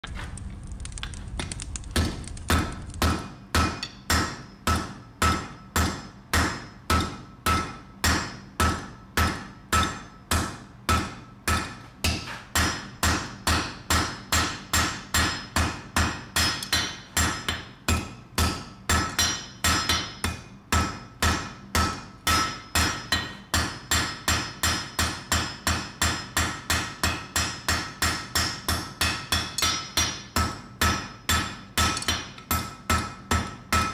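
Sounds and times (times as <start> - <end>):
low rumble: 0.0 - 3.1
hammer on anvil: 2.5 - 33.9.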